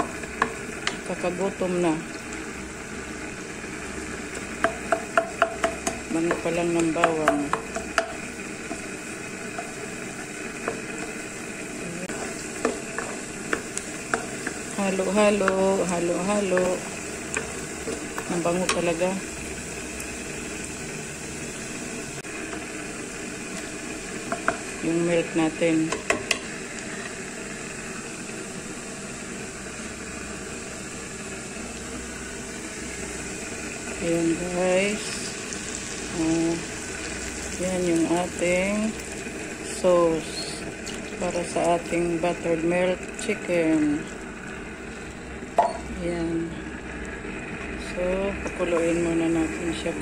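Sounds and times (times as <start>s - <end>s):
garlic sizzling in butter: 0.0s - 50.0s
wooden spatula knocking pan: 4.4s - 8.8s.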